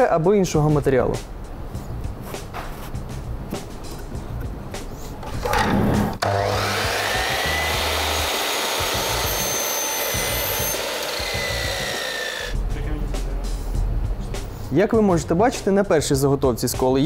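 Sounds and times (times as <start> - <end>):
mitre saw cutting wood: 6.2 - 12.6.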